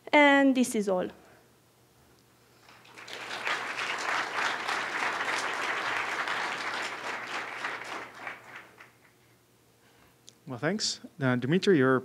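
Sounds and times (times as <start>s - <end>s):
audience applauding: 2.6s - 9.2s.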